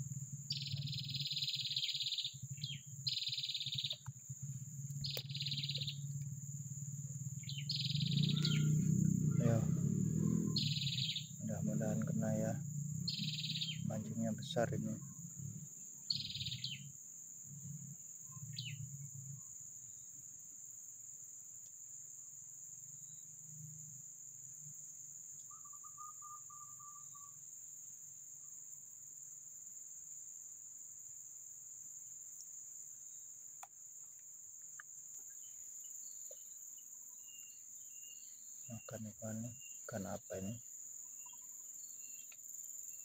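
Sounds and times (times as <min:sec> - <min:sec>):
bird chirps: 0:00.0 - 0:17.0, 0:18.2 - 0:20.2, 0:25.3 - 0:27.4, 0:34.7 - 0:43.0
insects droning: 0:00.0 - 0:43.0.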